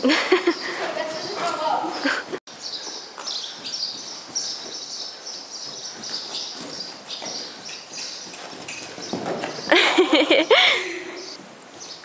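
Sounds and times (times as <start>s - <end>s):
small birds chirping: 0.3s - 12.0s
pony hoofbeats on sand: 0.6s - 2.0s, 2.7s - 10.0s.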